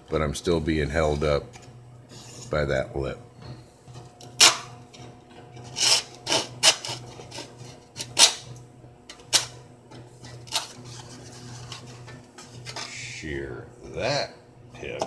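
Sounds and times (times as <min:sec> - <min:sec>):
hand saw cutting plywood: 0:05.6 - 0:08.4.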